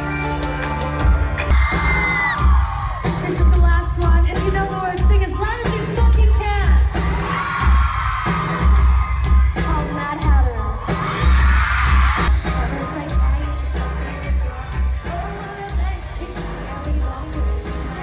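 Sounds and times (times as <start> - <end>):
crowd: 0.0 - 18.0
drums: 0.0 - 18.0
booming bass beats: 0.2 - 18.0
female singer: 3.2 - 7.1, 9.5 - 11.1, 12.3 - 18.0.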